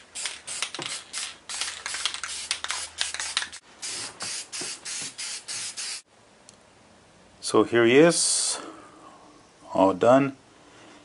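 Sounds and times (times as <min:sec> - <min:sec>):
aerosol spray bursts: 0:00.0 - 0:06.1.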